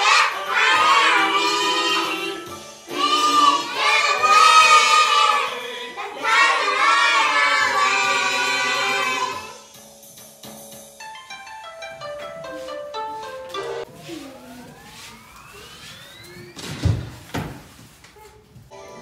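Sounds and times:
children singing together: 0.0s - 9.6s.

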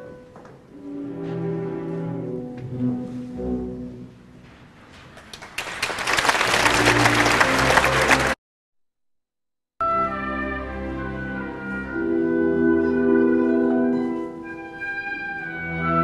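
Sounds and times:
orchestra strings: 0.0s - 4.6s, 6.4s - 8.4s, 9.8s - 16.0s
audience applause: 5.2s - 8.4s.

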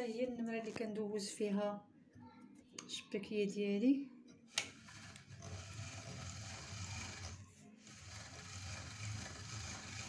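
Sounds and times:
pasta roller whirring: 4.5s - 10.0s.

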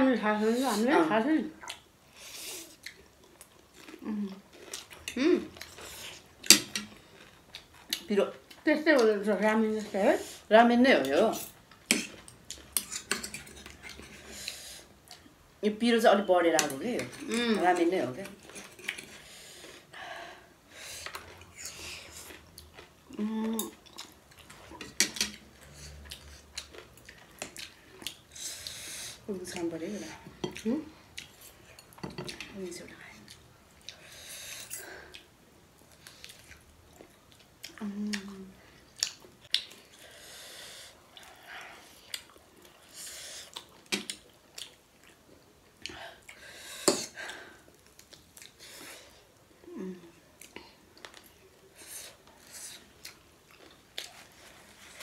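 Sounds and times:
person humming: 5.2s - 5.5s, 23.1s - 23.7s, 37.8s - 38.6s, 49.6s - 50.1s.

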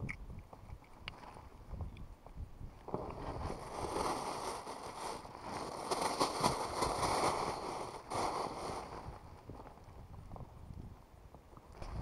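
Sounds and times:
crackling handling noise: 2.8s - 10.9s.

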